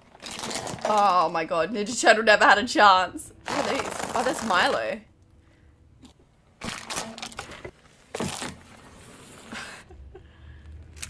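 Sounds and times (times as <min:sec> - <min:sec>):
tyre crunching brittle pieces: 0:00.0 - 0:01.0, 0:06.6 - 0:08.6.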